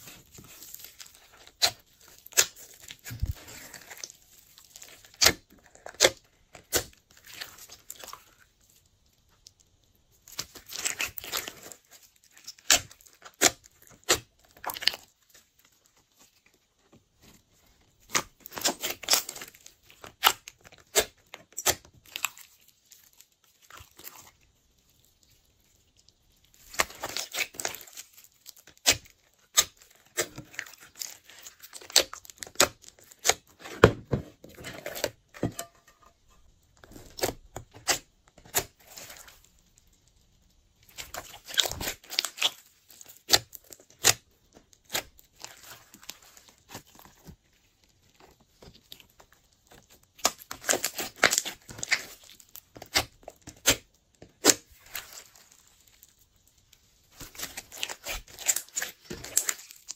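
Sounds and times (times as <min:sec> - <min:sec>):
slime crackling and popping: 0:00.0 - 0:33.9, 0:36.3 - 0:59.9.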